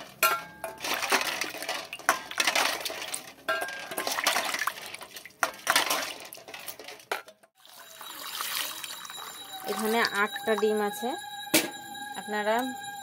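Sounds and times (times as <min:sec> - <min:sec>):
water sloshing and splashing: 0:00.7 - 0:10.6.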